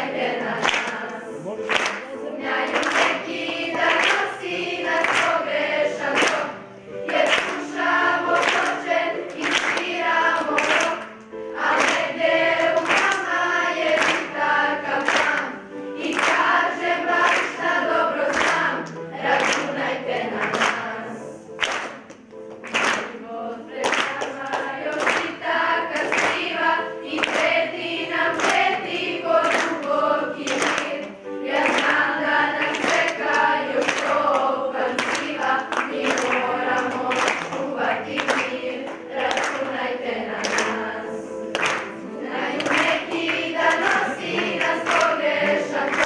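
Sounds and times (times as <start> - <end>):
children's choir singing: 0.0 - 46.0.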